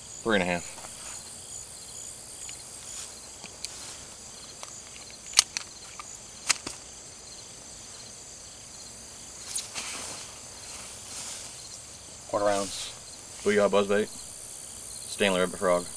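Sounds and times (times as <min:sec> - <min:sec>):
insects chirping in grass: 0:00.0 - 0:15.9
handling clicks and knocks: 0:03.3 - 0:03.8, 0:04.4 - 0:06.8.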